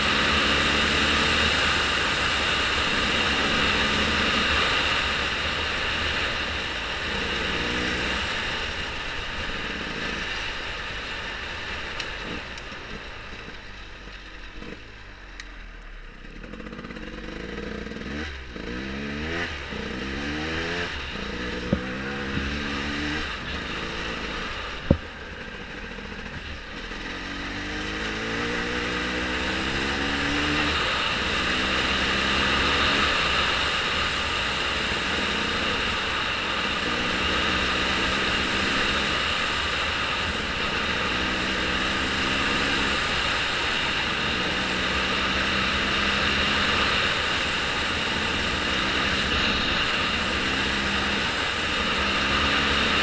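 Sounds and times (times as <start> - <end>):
vehicle engine revving: 0.0 - 53.0
wind or road noise: 0.0 - 53.0.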